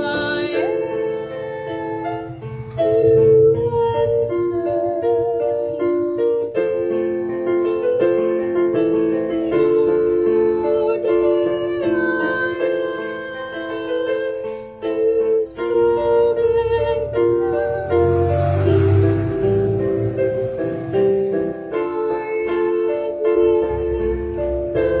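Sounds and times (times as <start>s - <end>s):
electronic keyboard slow melody: 0.0s - 25.0s.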